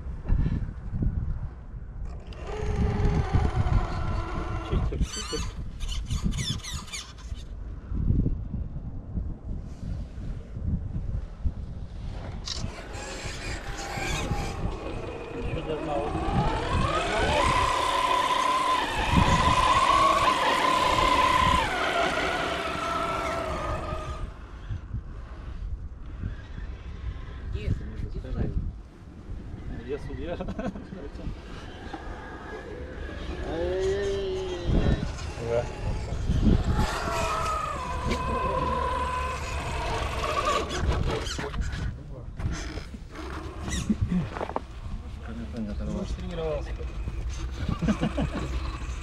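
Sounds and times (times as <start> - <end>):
electric motor and gears whining: 2.1 - 7.4, 12.1 - 24.7, 31.1 - 41.8, 42.4 - 44.7, 45.5 - 49.0.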